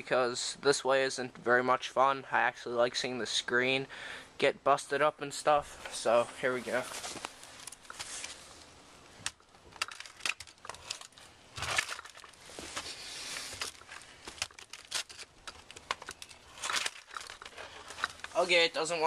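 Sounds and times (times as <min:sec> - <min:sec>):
plastic handling rustling: 0:05.6 - 0:18.5.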